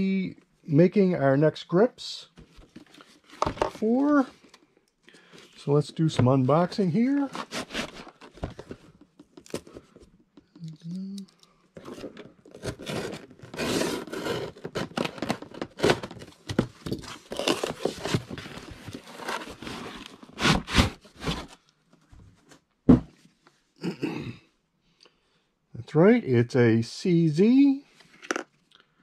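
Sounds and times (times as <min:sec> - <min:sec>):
cardboard flaps scraping: 0:07.1 - 0:08.8, 0:17.3 - 0:21.6.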